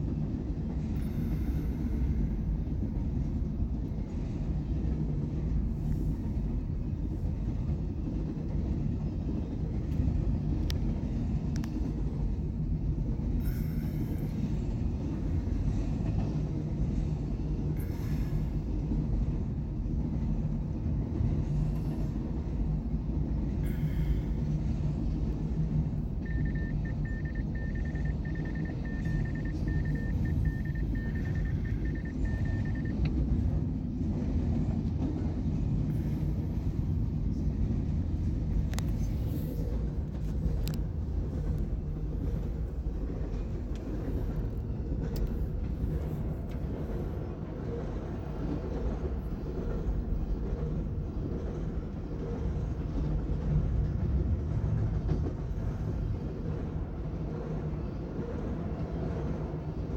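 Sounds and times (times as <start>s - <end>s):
train wheels rumbling on rails: 0.0s - 59.9s
pulsing high tone: 26.2s - 33.0s.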